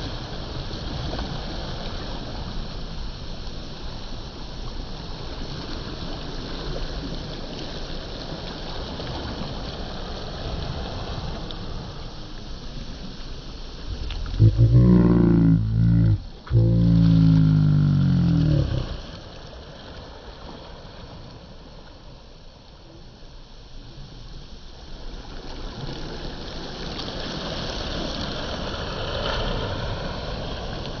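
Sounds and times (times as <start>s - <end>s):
slowed-down sea wash: 0.0s - 31.0s
deep drawn-out pitched sound: 13.9s - 19.0s.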